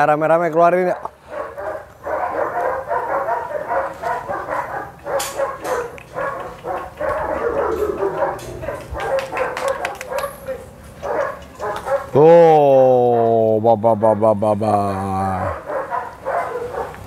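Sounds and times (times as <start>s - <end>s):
puppies barking and yipping: 0.9s - 12.2s, 15.4s - 17.0s.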